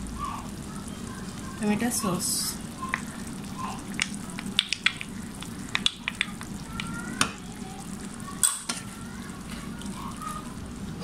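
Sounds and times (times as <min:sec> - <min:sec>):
sauce sizzling in a frying pan: 0:00.0 - 0:11.0
pops and crackles: 0:02.8 - 0:07.4.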